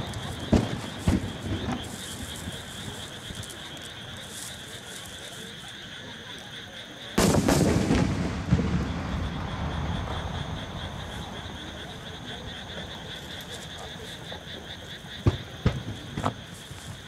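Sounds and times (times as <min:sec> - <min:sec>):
firework shells bursting: 0:00.0 - 0:03.3, 0:07.2 - 0:10.8.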